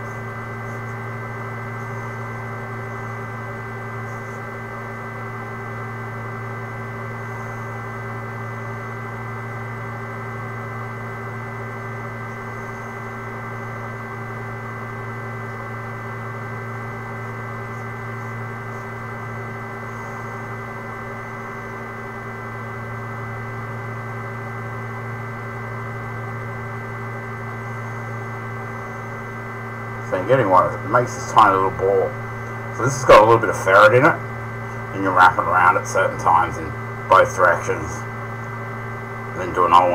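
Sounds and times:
electrical hum: 0.0s - 39.9s.

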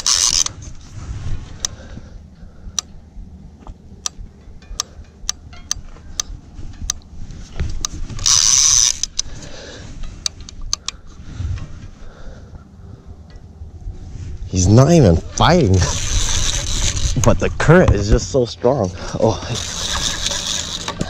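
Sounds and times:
fishing reel gears clicking: 0.0s - 0.6s, 7.8s - 9.4s, 15.4s - 17.3s, 19.4s - 21.0s.

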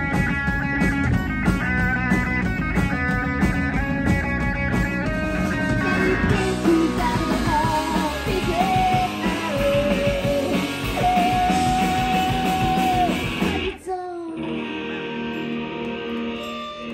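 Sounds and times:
punk rock band playing: 0.0s - 16.9s
woman singing: 6.3s - 13.1s, 13.7s - 14.5s.

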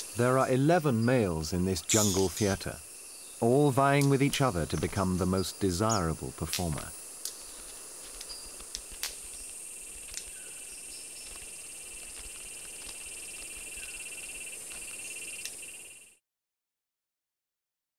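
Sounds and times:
frogs and insects calling: 0.0s - 16.2s
sharp snaps: 6.4s - 10.4s.

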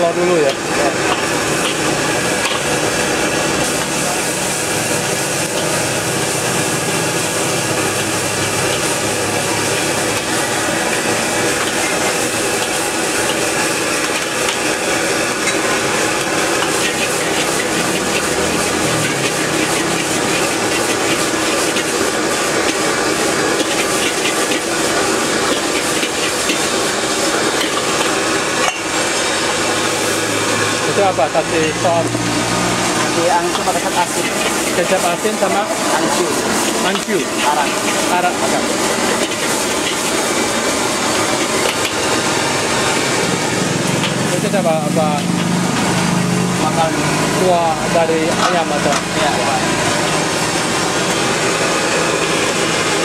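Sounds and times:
gas burner flame rushing: 0.0s - 53.0s
vegetables sizzling: 0.0s - 53.0s
metal ladle scraping wok: 0.4s - 30.5s, 31.6s - 52.8s.

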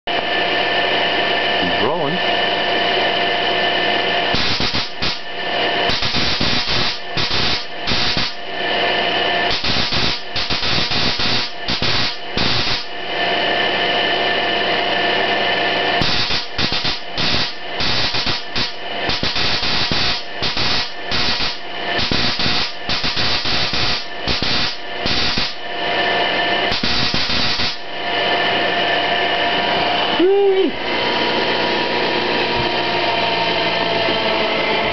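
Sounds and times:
spark-gap transmitter buzzing: 4.2s - 13.0s, 15.9s - 25.8s, 26.5s - 28.0s.

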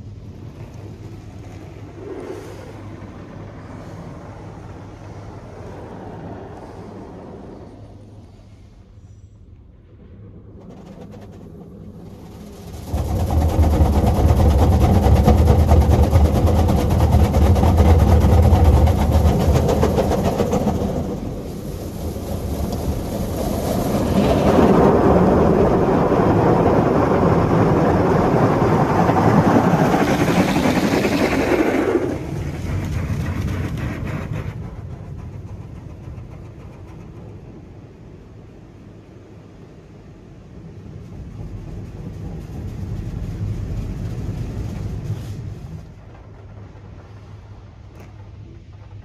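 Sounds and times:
deep rumble: 0.0s - 49.0s
car wash jets spraying water: 11.8s - 38.0s, 40.7s - 47.4s.

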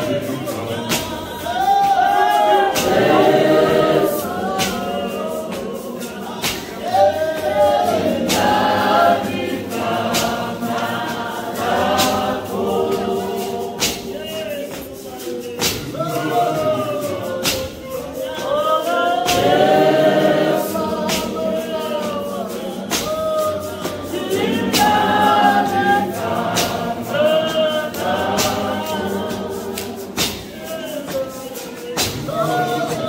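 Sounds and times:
congregation singing a hymn: 0.0s - 33.0s
sharp beat: 0.0s - 33.0s.

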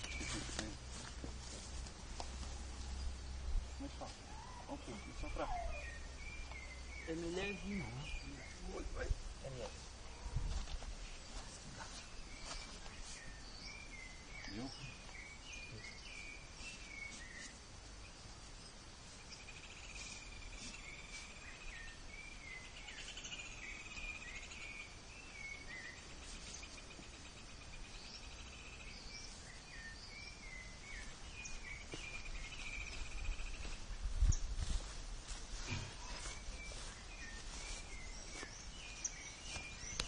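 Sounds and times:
small birds chirping: 0.0s - 40.0s
buzzy insect-like trills: 15.9s - 22.0s.

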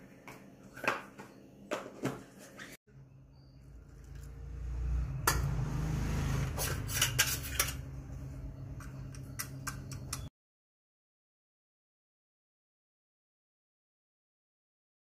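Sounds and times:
spoon clinking and scraping bowl: 6.5s - 10.3s.

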